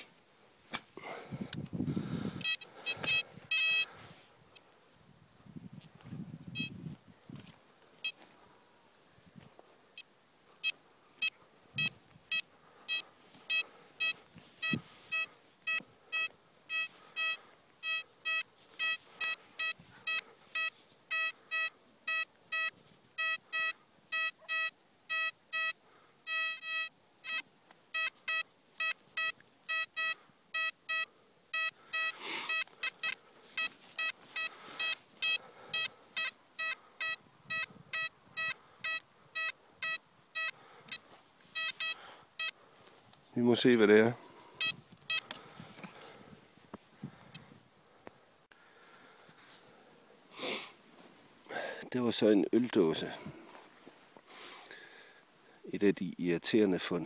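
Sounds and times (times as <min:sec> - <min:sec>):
metal detector beeping: 0:02.4 - 0:04.0, 0:06.5 - 0:06.8, 0:08.0 - 0:08.2, 0:10.0 - 0:42.6, 0:44.5 - 0:45.4.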